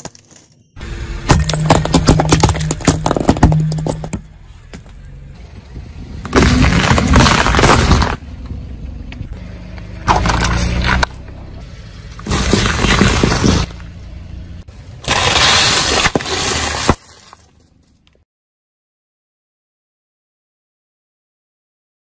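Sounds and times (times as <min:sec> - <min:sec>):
low engine hum: 0:00.8 - 0:15.0
tyre crushing fruit: 0:01.2 - 0:04.3, 0:06.3 - 0:08.2, 0:15.0 - 0:17.4.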